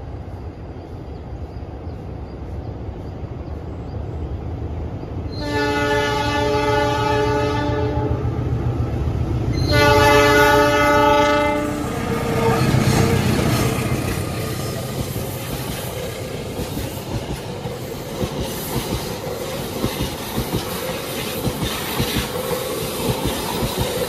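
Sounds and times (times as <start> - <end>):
locomotive engine rumbling: 0.9 - 24.0
locomotive horn blasts: 5.3 - 8.3, 9.6 - 13.4.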